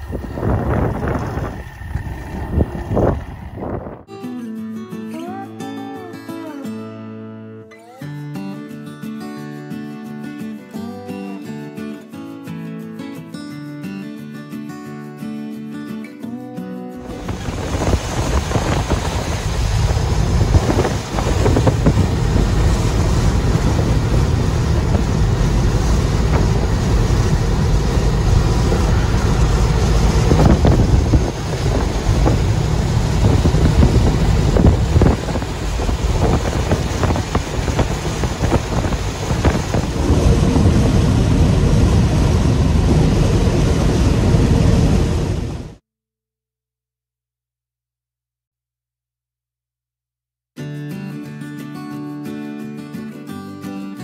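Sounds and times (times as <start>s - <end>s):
truck engine and road drone: 0.0s - 4.0s, 17.0s - 45.8s
wind rushing: 0.0s - 4.1s, 17.0s - 45.8s.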